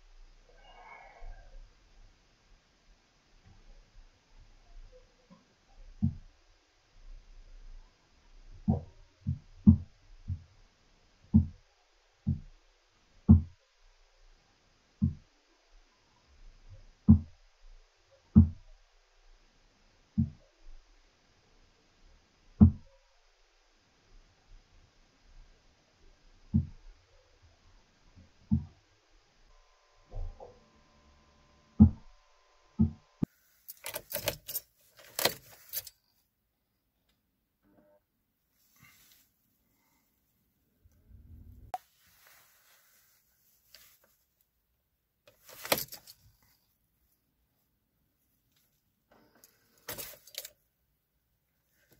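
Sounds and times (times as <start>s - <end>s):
dull thumps: 22.6s - 22.9s
car keys jangling: 33.7s - 36.0s, 45.3s - 46.2s, 49.4s - 50.5s.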